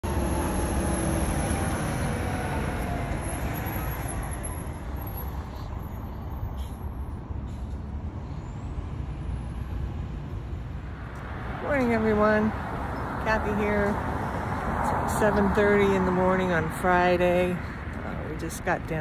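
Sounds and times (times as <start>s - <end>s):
low rumble of road traffic: 0.0s - 19.0s
vehicle passing: 8.2s - 19.0s.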